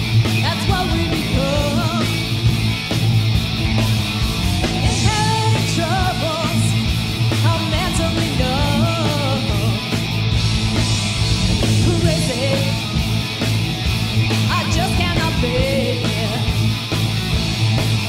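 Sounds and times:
bass guitar: 0:00.0 - 0:18.0
drums: 0:00.0 - 0:18.0
electric guitars: 0:00.0 - 0:18.0
woman singing: 0:00.4 - 0:02.2, 0:04.9 - 0:06.7, 0:07.4 - 0:09.8, 0:11.8 - 0:12.8, 0:14.5 - 0:16.5.

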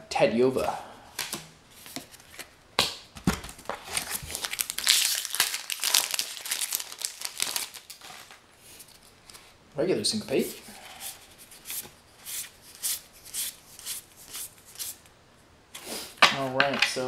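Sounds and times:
foil wrapper crinkling and tearing: 0:03.7 - 0:08.4.

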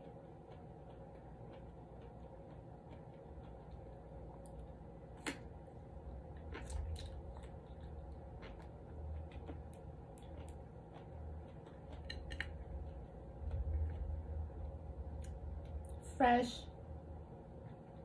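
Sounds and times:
person chewing: 0:00.0 - 0:16.0
mouth clicks and crunches: 0:06.2 - 0:14.2.

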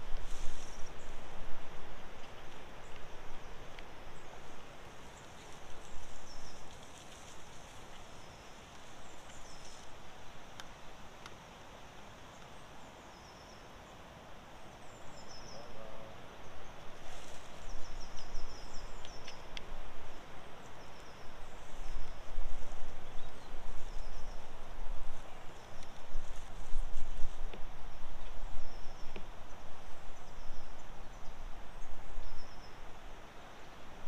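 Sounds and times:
steady hiss: 0:00.0 - 0:34.0
birds singing trills: 0:05.1 - 0:06.9, 0:12.3 - 0:19.6, 0:20.4 - 0:27.0, 0:28.2 - 0:32.9.

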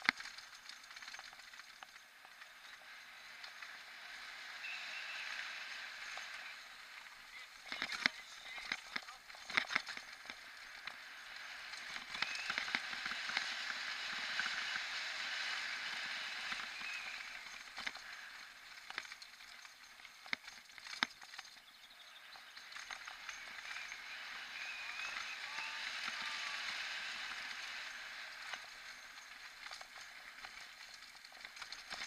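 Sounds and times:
bicycle tyres rolling on concrete: 0:00.0 - 0:32.0
sharp clicks and knocks: 0:07.6 - 0:11.0.

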